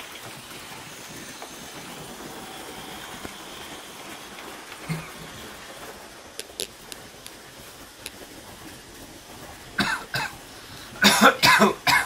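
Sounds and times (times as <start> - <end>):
person coughing: 9.8 - 10.4, 11.0 - 12.0.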